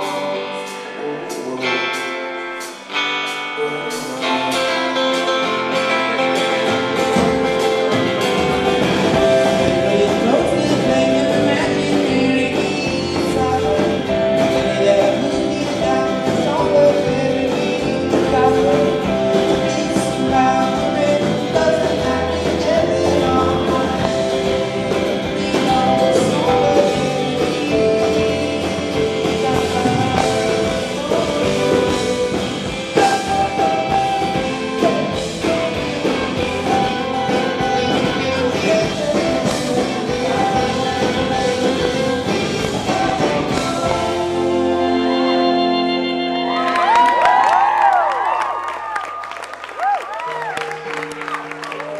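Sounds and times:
man singing into microphone: 0.0 - 2.7, 3.4 - 6.4, 9.2 - 46.6
drums: 0.0 - 49.0
electric guitar: 0.0 - 51.9
keyboard: 0.0 - 51.9.

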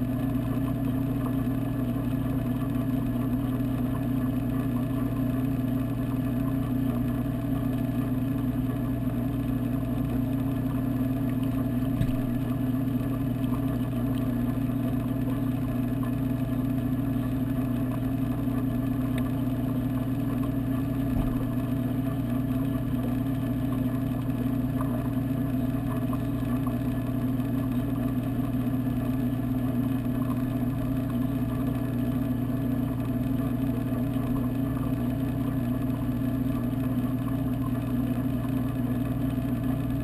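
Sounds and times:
water pump hum underwater: 0.0 - 40.0.

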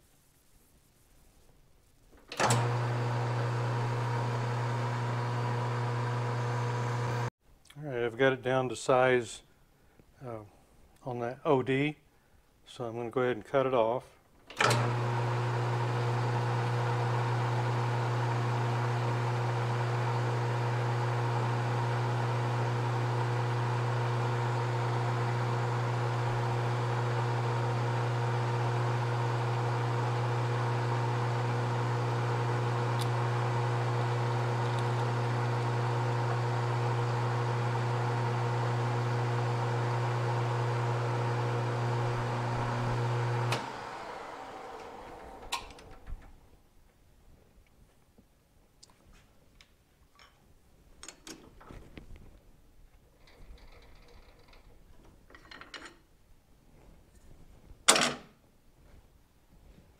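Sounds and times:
metal lathe running: 14.6 - 45.5.

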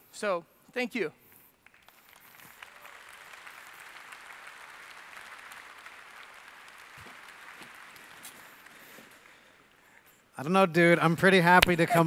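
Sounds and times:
audience applauding: 1.6 - 9.8.

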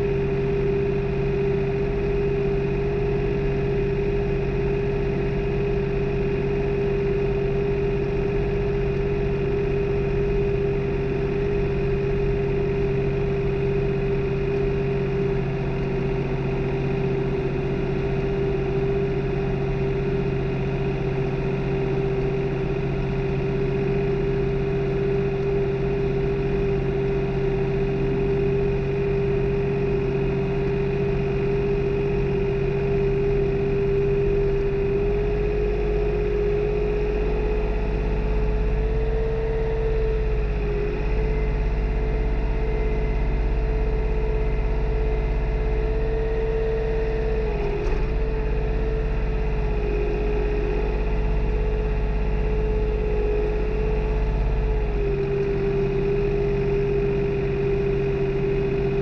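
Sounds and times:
tractor engine droning: 0.0 - 59.0
deeper rumble: 25.6 - 59.0.

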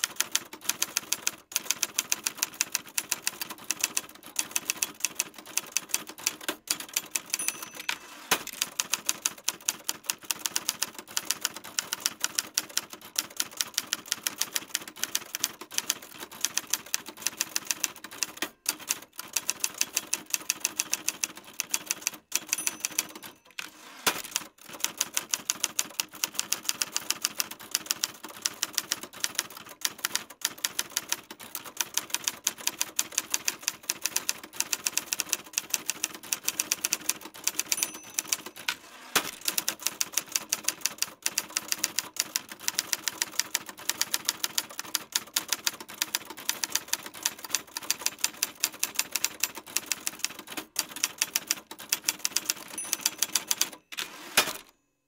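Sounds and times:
typewriter keystrokes: 0.0 - 54.7.

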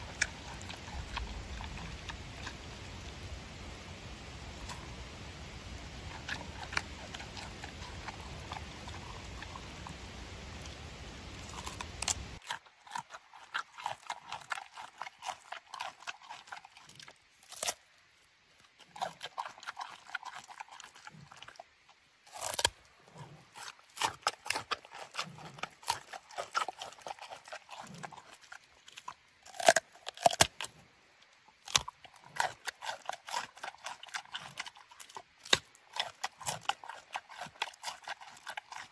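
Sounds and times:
panda chewing and crunching: 0.0 - 3.2, 6.0 - 10.8, 11.4 - 17.9, 18.6 - 30.8, 31.6 - 38.9
steady hiss: 0.0 - 12.4.

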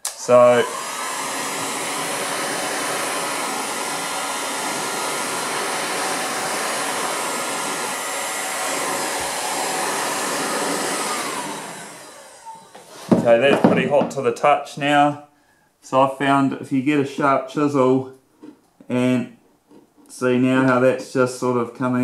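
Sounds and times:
heat gun blowing air: 0.0 - 13.2.

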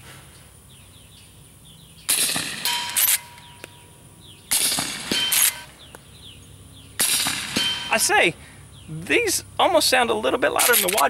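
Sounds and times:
suppressed gunshots: 2.1 - 3.2, 4.5 - 5.8, 7.0 - 7.9
rifle lever clattering: 10.6 - 11.0.

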